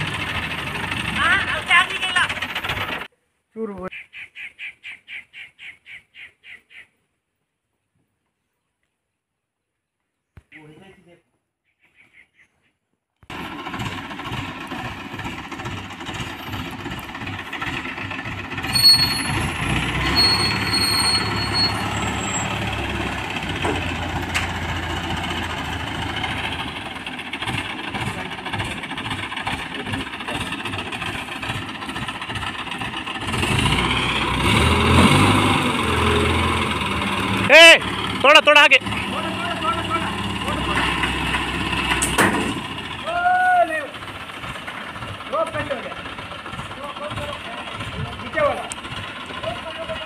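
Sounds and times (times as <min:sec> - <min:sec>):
diesel engine rumbling: 0:00.0 - 0:03.1, 0:13.3 - 0:50.0.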